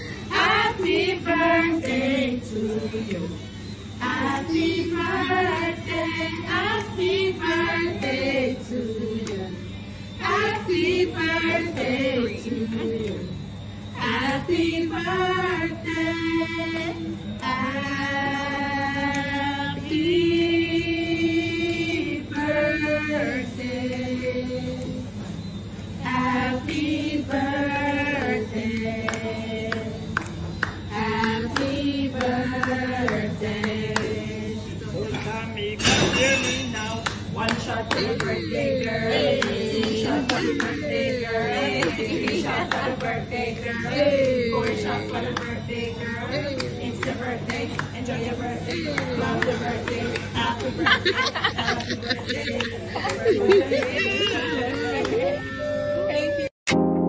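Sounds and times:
group singing birthday song: 0.0s - 57.0s
hand claps: 1.8s - 2.0s, 27.8s - 34.2s, 35.1s - 55.4s.

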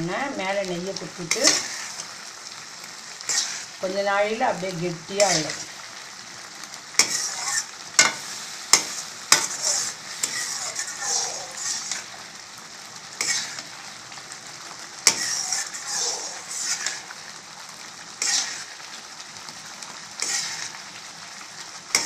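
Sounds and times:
ladle scraping a pan: 3.3s - 3.7s, 7.0s - 12.1s, 13.2s - 13.7s, 15.0s - 17.1s, 18.2s - 18.8s, 20.2s - 20.8s.

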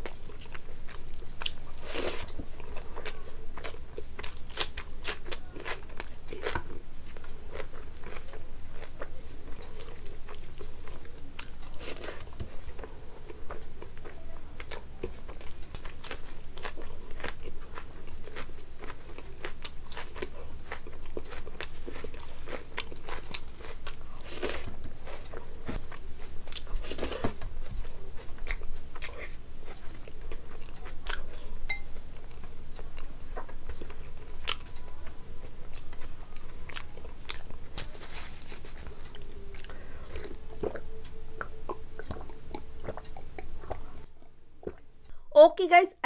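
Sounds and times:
chewing and biting food: 0.0s - 44.0s.

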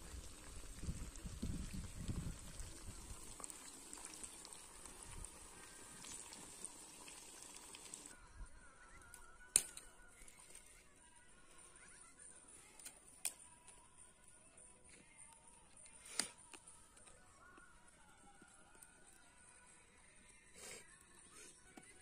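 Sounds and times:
fish frying in oil: 0.0s - 8.1s.

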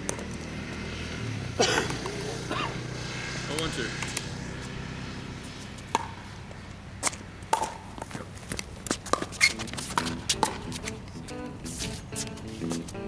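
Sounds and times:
ball bouncing: 0.0s - 0.5s, 4.0s - 4.3s, 5.8s - 12.8s
paddles hitting plastic ball: 7.0s - 11.0s
shoes scuffing on hard court: 8.0s - 13.0s.

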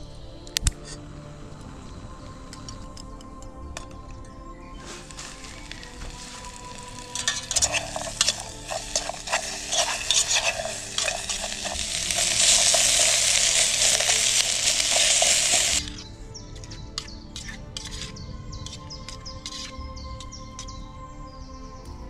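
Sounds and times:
onions sizzling in a pan: 4.8s - 16.0s
stirring clicks: 4.8s - 16.0s, 16.6s - 18.1s, 18.7s - 20.7s.

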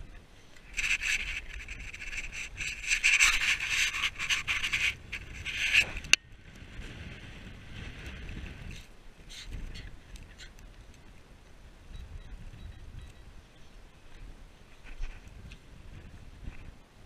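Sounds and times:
rough scraping and rubbing: 0.7s - 6.2s.

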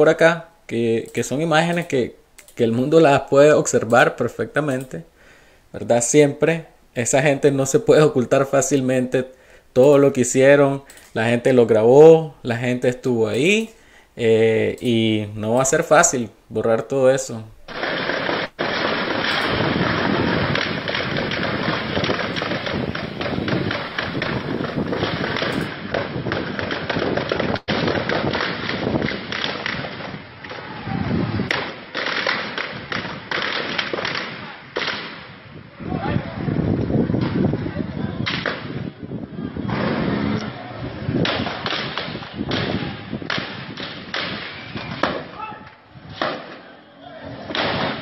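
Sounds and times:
background noise: 0.0s - 48.0s
gunshots: 17.6s - 35.4s, 39.6s - 45.4s, 47.4s - 48.0s
constant rough noise: 17.6s - 48.0s
gunfire cracks: 17.7s - 30.8s, 31.4s - 35.4s, 38.3s - 38.8s, 41.2s - 45.4s, 47.5s - 48.0s.

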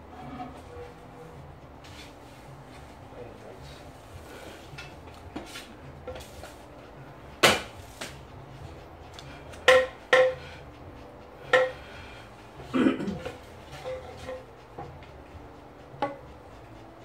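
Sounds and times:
bamboo sticks knocking: 7.4s - 8.1s, 9.6s - 10.4s.

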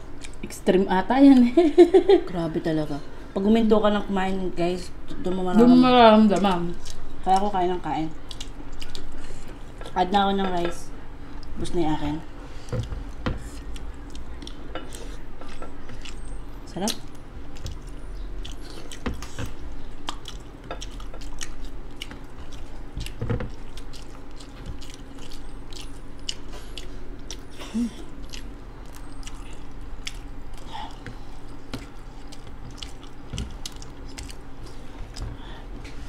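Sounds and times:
chewing and mouth smacks: 8.2s - 10.0s, 12.8s - 36.0s.

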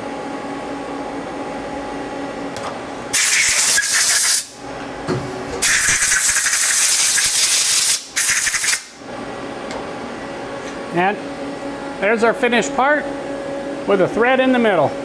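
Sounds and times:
machine hum: 0.0s - 15.0s
compressed air hissing: 3.1s - 4.5s, 5.6s - 8.9s.

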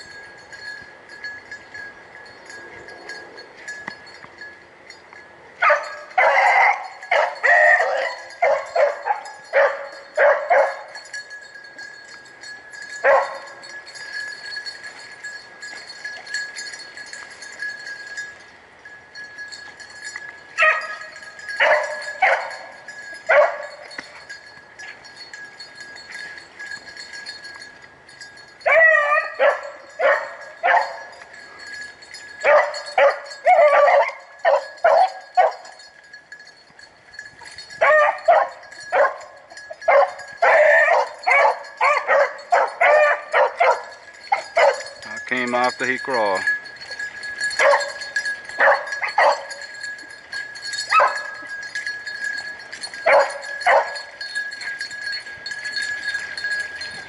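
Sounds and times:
hounds baying: 5.6s - 11.2s, 12.9s - 13.7s, 20.6s - 24.3s, 28.6s - 31.8s, 32.4s - 35.8s, 37.5s - 45.8s, 46.4s - 54.8s.

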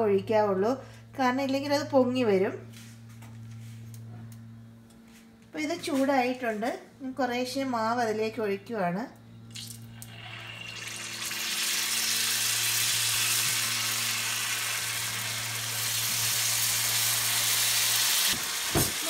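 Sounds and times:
steady low hum: 0.0s - 19.0s
batter sizzling in hot oil: 9.6s - 19.0s.

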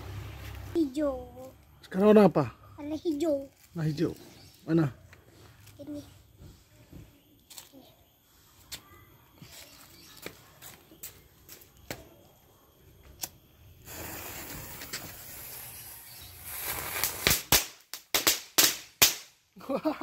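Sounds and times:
firework sharp pops: 13.2s - 19.4s
firework fizzing: 13.8s - 19.3s.

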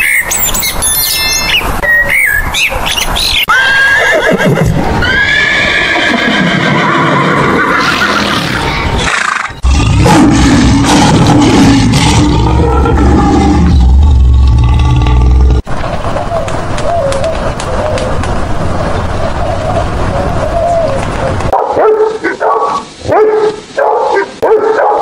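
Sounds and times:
horse neighing: 3.5s - 9.5s
lion roaring: 9.6s - 15.6s.

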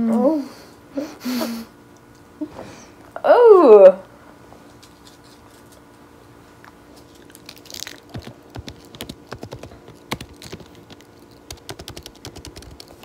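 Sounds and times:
faint steady hum: 0.0s - 13.0s
laptop keyboard typing: 7.8s - 13.0s.

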